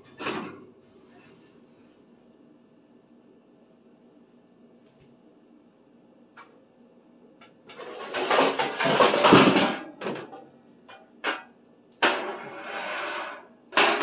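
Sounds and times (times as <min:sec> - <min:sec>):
sheet pan scraping on oven rack: 0:07.7 - 0:09.8, 0:12.0 - 0:14.0
metal baking pans clattering: 0:07.7 - 0:14.0.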